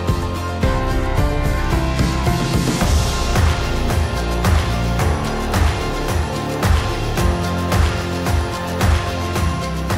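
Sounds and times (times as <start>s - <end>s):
background music with drum beat: 0.0s - 9.9s.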